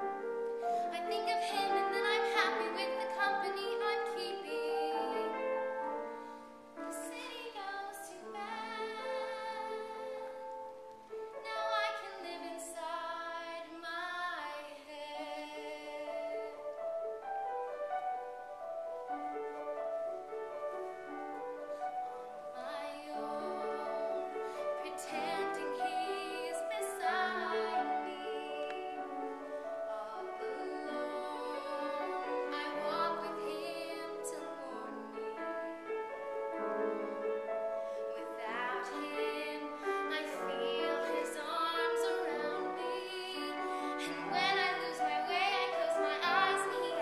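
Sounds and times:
grand piano: 0.0 - 47.0
woman singing ballad: 0.8 - 5.4, 6.9 - 10.5, 11.4 - 16.6, 22.6 - 29.2, 29.8 - 35.3, 38.1 - 47.0.

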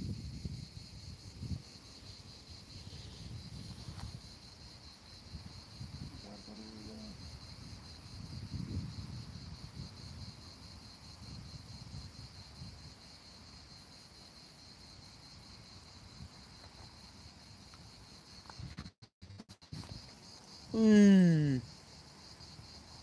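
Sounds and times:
insects chirring: 0.0 - 23.0.

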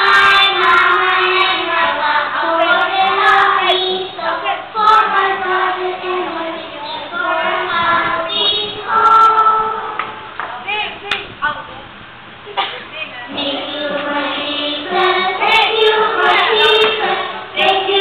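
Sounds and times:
children singing together: 0.0 - 10.3, 13.3 - 18.0.

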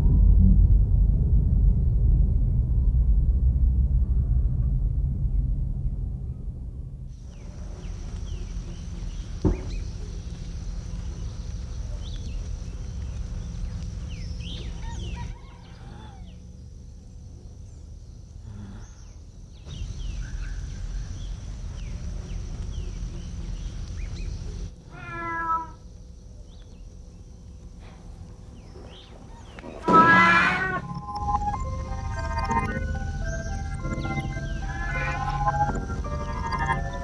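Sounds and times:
low steady rumble: 0.0 - 18.5, 19.1 - 25.0, 30.5 - 37.0
cat meowing: 24.9 - 25.8, 29.8 - 31.0, 34.7 - 35.4.

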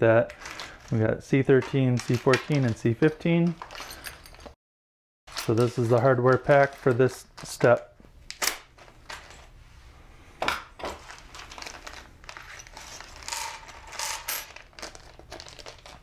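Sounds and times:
screws clinking and rattling: 1.6 - 4.6, 10.9 - 16.0
plastic bag crinkling: 11.0 - 13.3, 14.5 - 16.0.

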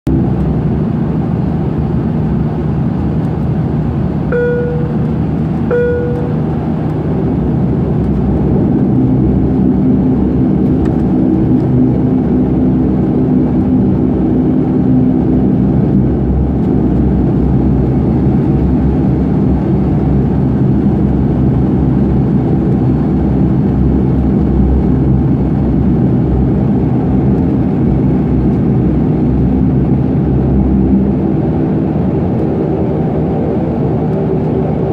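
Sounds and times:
turboprop engines droning: 0.1 - 34.9
short chime tones: 4.3 - 5.0, 5.7 - 6.4.

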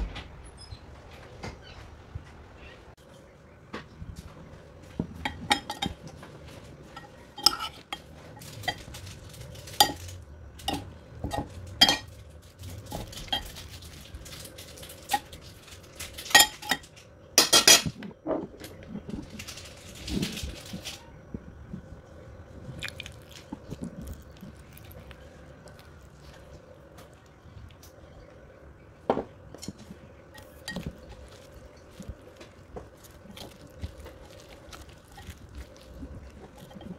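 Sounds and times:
utensil clinking in ceramic bowl: 9.6 - 12.1.

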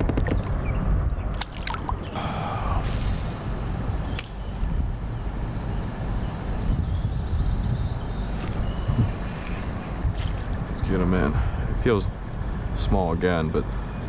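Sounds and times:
wind rumble on microphone: 0.0 - 14.0
sharp click: 4.1 - 4.4.

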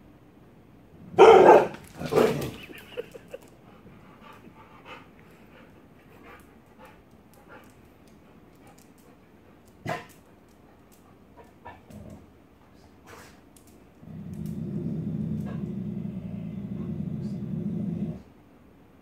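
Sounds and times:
puppy barking: 1.2 - 1.8
faint clicks: 13.5 - 14.6.

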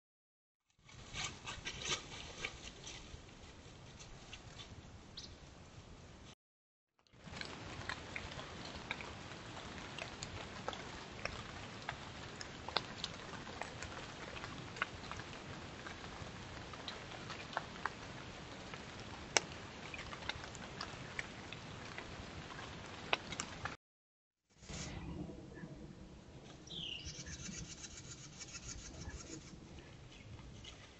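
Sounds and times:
trickling creek water: 7.1 - 23.8
water drips and small splashes: 7.1 - 23.8.

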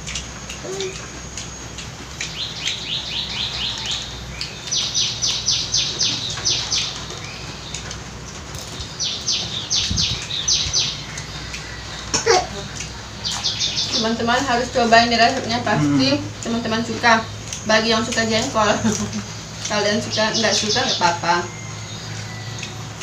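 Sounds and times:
bird chirping: 0.1 - 8.0, 8.6 - 23.0
loud bird cry: 2.4 - 7.8, 8.7 - 14.2.

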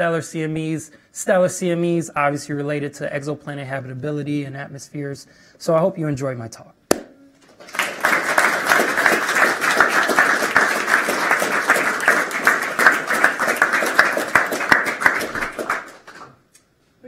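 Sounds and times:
audience applauding: 7.5 - 16.4.

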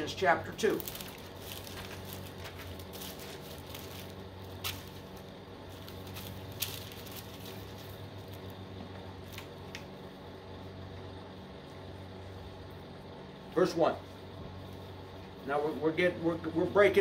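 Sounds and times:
steady low hum: 0.0 - 17.0
pages rustling: 0.6 - 8.6.

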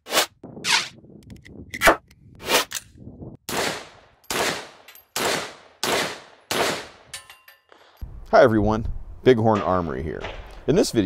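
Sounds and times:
rifle shots: 3.5 - 7.1.

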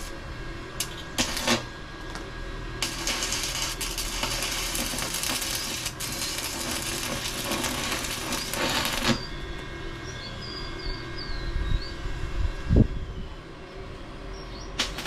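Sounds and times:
welding arc crackling: 0.8 - 2.2, 2.8 - 9.3, 14.8 - 15.0
small birds chirping: 8.2 - 12.0, 14.3 - 14.8.

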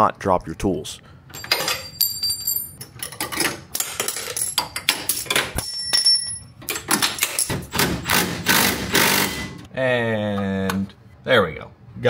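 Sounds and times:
metal tools clattering: 1.3 - 7.6.

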